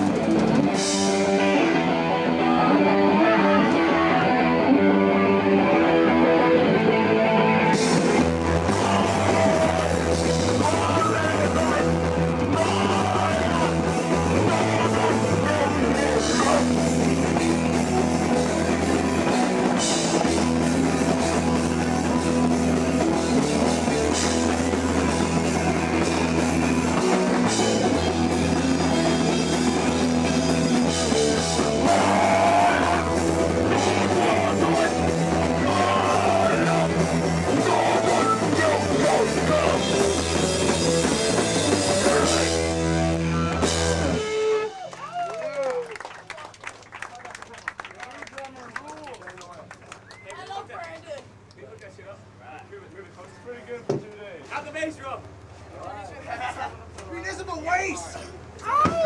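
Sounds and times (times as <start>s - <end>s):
distorted electric guitar riff: 0.0s - 44.7s
bass guitar: 0.0s - 45.8s.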